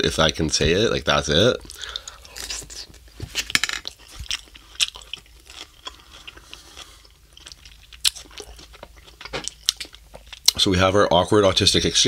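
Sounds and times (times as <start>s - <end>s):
person chewing crunchy lettuce: 3.9s - 10.6s.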